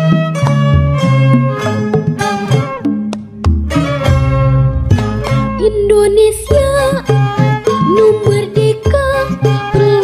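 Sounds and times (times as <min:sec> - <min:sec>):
plucked string notes: 0:00.0 - 0:10.0
low bass line: 0:00.6 - 0:07.6.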